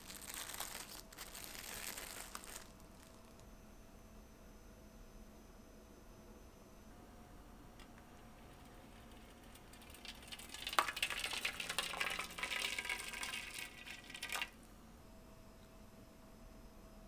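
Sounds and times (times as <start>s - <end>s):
water pouring into tray: 9.0s - 14.5s.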